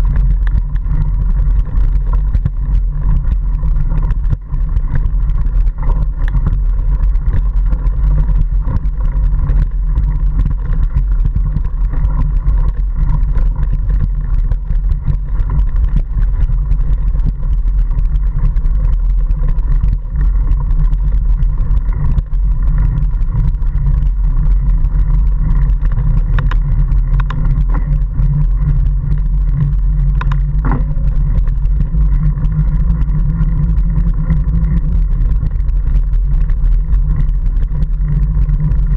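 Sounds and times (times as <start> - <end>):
bike ride and wind rumble: 0.0 - 38.9
bike knocks and rattles: 30.1 - 31.5.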